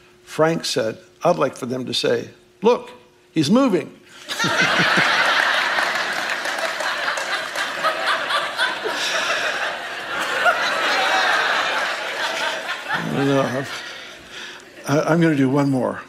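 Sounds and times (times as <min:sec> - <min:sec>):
crowd laughing: 0:04.2 - 0:14.8.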